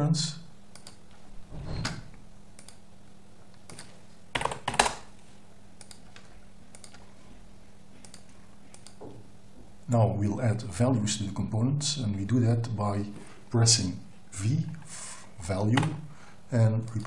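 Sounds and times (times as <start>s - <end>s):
keyboard and mouse clicks: 0.7s - 1.1s, 2.6s - 2.8s, 3.6s - 5.1s, 5.8s - 7.0s, 8.0s - 9.1s.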